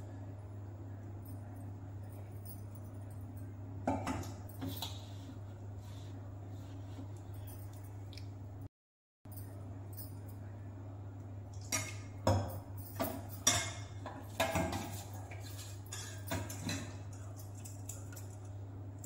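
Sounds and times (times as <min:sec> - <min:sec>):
steady low hum: 0:00.0 - 0:08.7, 0:09.3 - 0:19.0.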